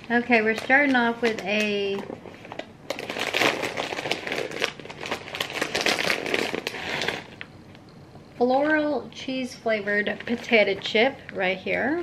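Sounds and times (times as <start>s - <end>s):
snack packaging crinkling: 0.0s - 7.9s.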